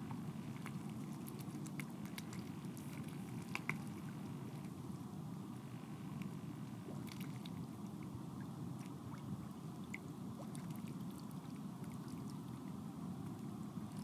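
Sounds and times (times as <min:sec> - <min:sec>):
small drips and splashes: 0:00.5 - 0:04.7.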